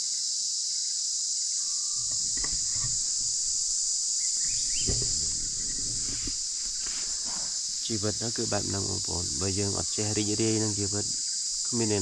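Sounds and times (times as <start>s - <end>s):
insects shrilling: 1.2s - 12.0s
soft knocks: 2.0s - 7.0s
low rustling: 2.0s - 11.7s.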